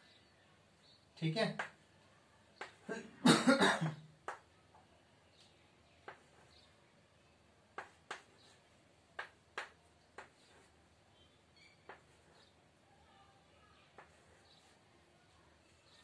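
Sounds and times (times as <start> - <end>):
chalk tapping on chalkboard: 2.6 - 2.8, 6.0 - 6.6, 7.7 - 8.6, 9.2 - 10.8, 11.9 - 12.5, 13.9 - 14.7.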